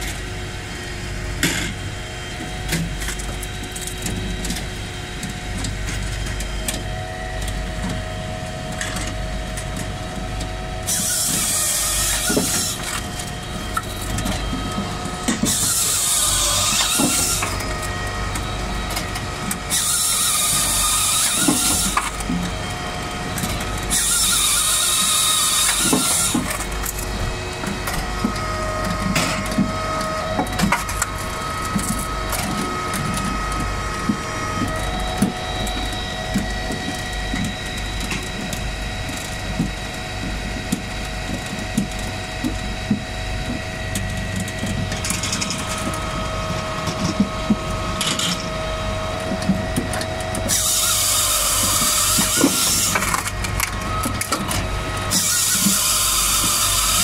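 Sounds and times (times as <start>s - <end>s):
machine humming: 0.0s - 57.0s
saw cutting through log: 10.6s - 36.8s, 50.4s - 57.0s.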